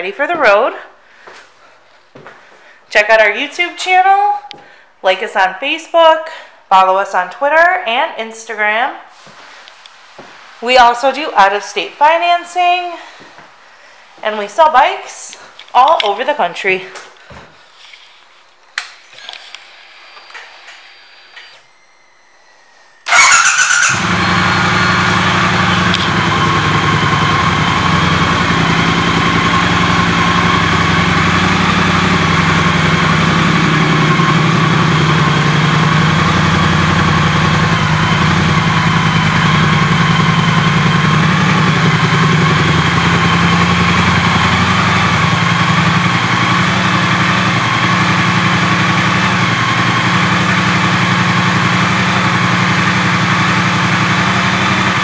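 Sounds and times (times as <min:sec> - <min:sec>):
motorcycle engine starting and idling: 0:19.1 - 0:55.0.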